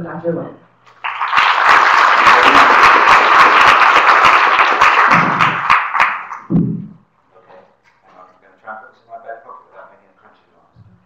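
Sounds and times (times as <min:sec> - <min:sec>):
audience applauding: 0:00.9 - 0:06.5.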